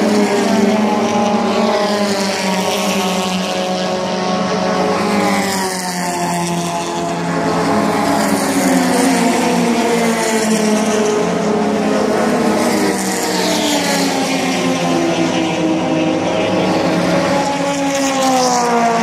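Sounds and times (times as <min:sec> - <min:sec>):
racing car engines passing: 0:00.0 - 0:19.0.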